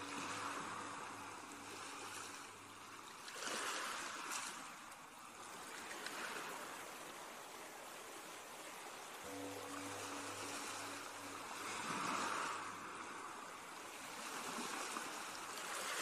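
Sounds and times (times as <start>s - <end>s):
ocean waves washing in: 0.0s - 16.0s
faint low humming tones: 9.0s - 15.9s.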